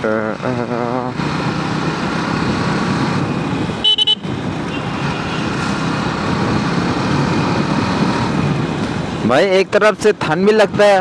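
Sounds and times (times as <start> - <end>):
horn beeps: 3.8 - 5.4.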